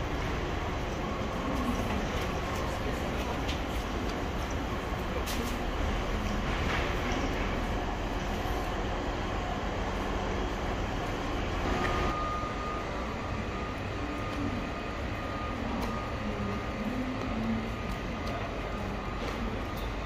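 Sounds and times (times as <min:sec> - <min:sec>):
train station hall rumble: 0:00.0 - 0:20.0
faint steady high tone: 0:11.7 - 0:17.9.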